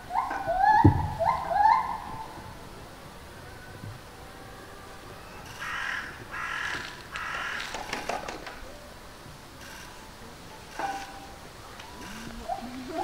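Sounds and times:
sharp crackling clicks: 0:05.4 - 0:08.7, 0:09.6 - 0:12.8
crow cawing: 0:05.5 - 0:08.1.

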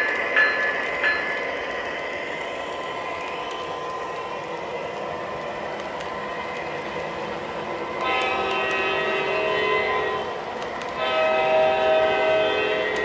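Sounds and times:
model train wheels rumbling: 0:00.0 - 0:13.0
diesel horn: 0:08.0 - 0:10.4, 0:11.0 - 0:13.0.

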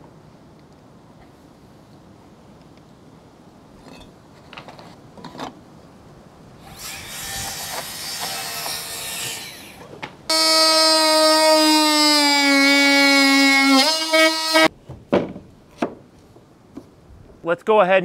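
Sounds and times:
oscillating multi-tool buzzing: 0:09.4 - 0:14.7.

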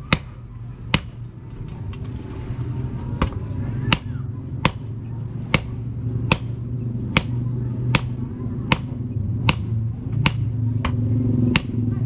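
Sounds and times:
steady low hum: 0:00.0 - 0:12.0
hammer striking metal rod: 0:09.5 - 0:11.8.

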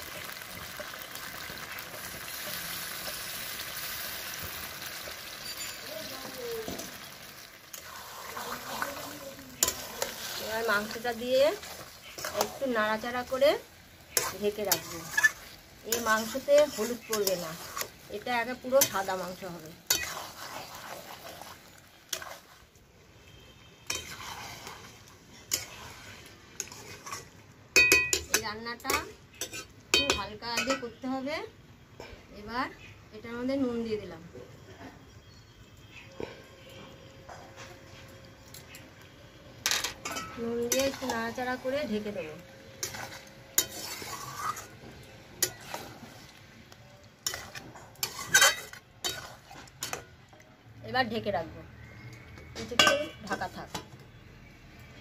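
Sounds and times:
low sizzle: 0:00.0 - 0:55.0
spatula stirring thick sauce: 0:07.7 - 0:18.0, 0:18.7 - 0:22.7, 0:23.8 - 0:27.4, 0:42.8 - 0:46.5, 0:47.2 - 0:49.7
metal spatula knocking pan: 0:30.0 - 0:30.9, 0:52.6 - 0:53.5.

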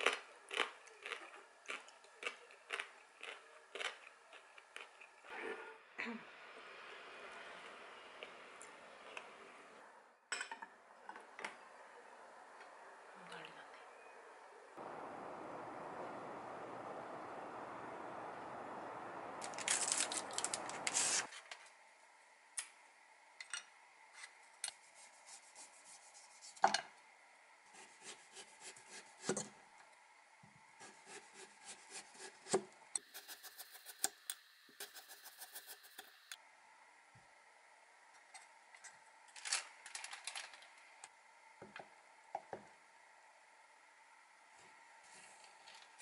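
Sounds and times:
outdoor air noise: 0:05.0 - 0:24.7.

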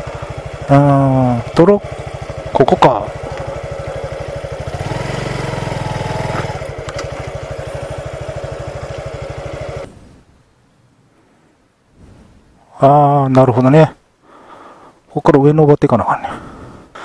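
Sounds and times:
motorcycle engine running: 0:00.0 - 0:10.1.

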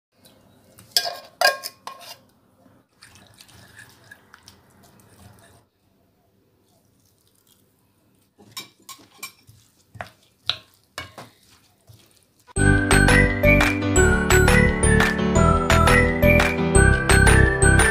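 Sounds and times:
bright jingly music: 0:12.6 - 0:17.9.

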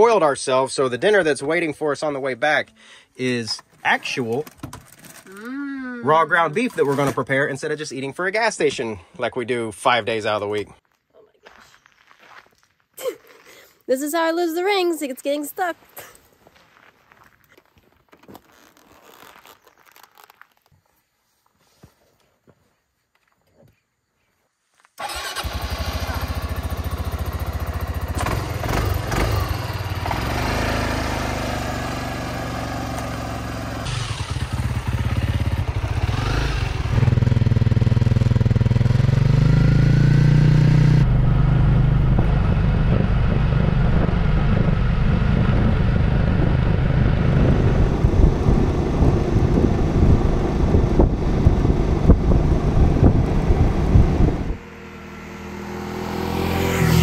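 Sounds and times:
motorcycle engine accelerating: 0:25.0 - 0:57.0
road rumble while riding: 0:25.0 - 0:57.0.

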